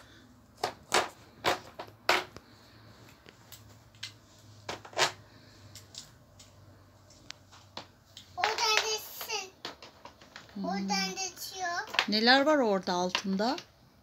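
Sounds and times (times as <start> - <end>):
plastic toy parts knocking: 0.6 - 2.4, 7.5 - 10.7, 11.7 - 12.4, 13.0 - 13.7.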